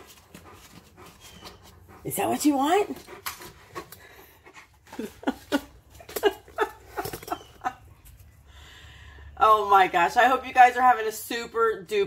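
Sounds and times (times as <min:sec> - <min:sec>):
dog whining: 0:01.0 - 0:01.9.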